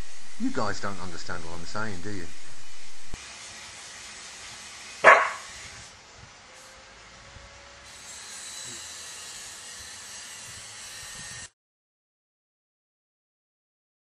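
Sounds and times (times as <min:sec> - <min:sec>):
steady background hiss: 0:00.0 - 0:07.8
dog barking: 0:05.0 - 0:05.5.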